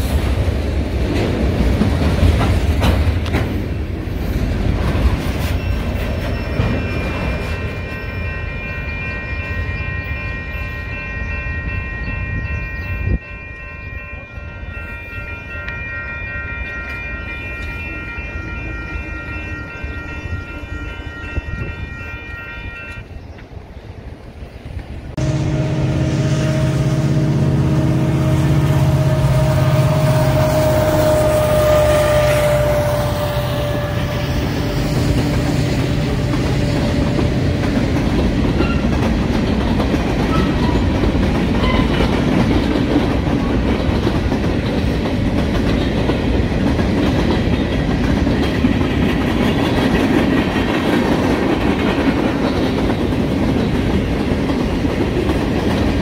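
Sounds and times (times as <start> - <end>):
freight train passing: 0.0 - 56.0
wheels clicking over rail joints: 0.2 - 8.3.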